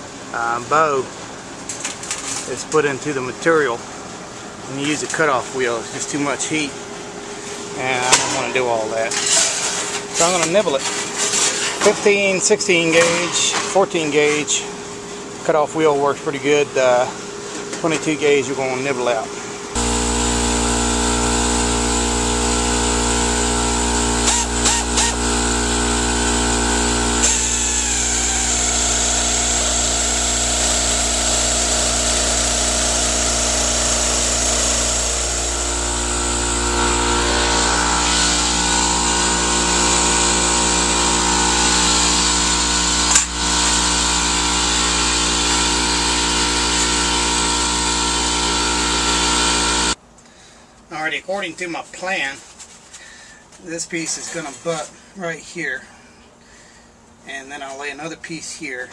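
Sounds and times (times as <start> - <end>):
pneumatic nibbler cutting sheet metal: 8.1 - 12.1, 13.0 - 13.6, 19.8 - 50.0.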